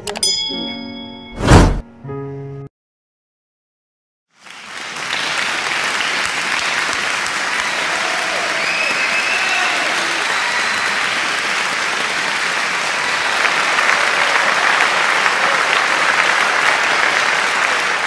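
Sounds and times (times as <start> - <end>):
crowd applauding: 4.4 - 18.0
faint whistles: 8.6 - 9.6.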